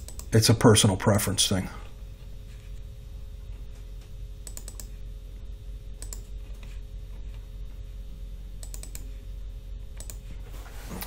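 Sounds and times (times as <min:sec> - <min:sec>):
low electrical hum: 0:00.0 - 0:11.0
mouse and keyboard clicks: 0:08.6 - 0:09.1.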